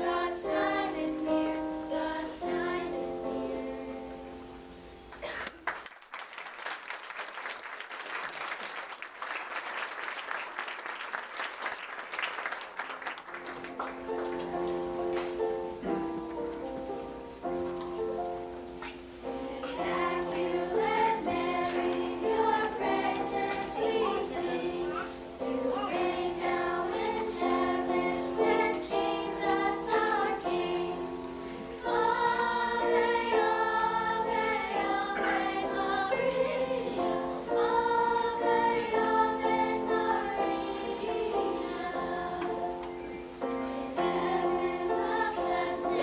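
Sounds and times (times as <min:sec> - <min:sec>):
children's choir singing: 0:00.0 - 0:04.5, 0:19.2 - 0:46.0
piano accompaniment: 0:00.0 - 0:05.2, 0:13.3 - 0:46.0.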